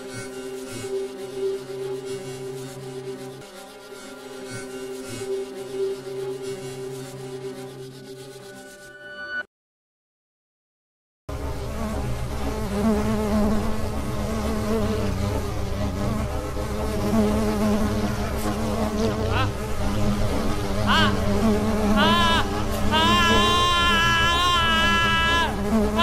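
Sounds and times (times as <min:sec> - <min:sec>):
swarm of flies buzzing: 0:00.0 - 0:08.3, 0:11.3 - 0:26.0
wavering high cries: 0:20.8 - 0:26.0.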